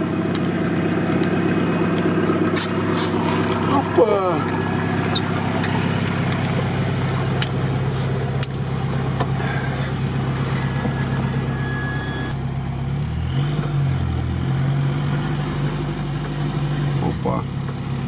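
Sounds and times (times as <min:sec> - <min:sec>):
vehicle engine running under load: 0:00.0 - 0:18.0.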